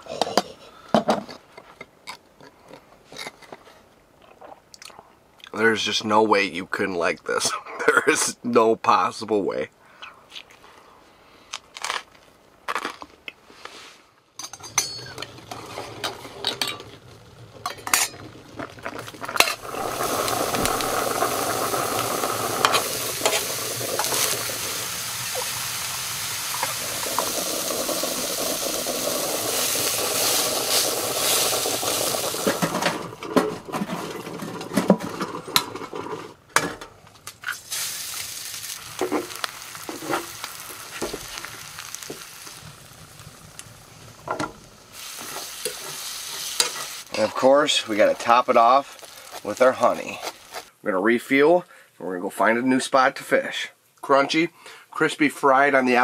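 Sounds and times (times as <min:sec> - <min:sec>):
utensils clinking against pan: 0:14.4 - 0:16.9, 0:17.6 - 0:18.2
meat sizzling in a pan: 0:15.2 - 0:32.9, 0:37.5 - 0:50.7.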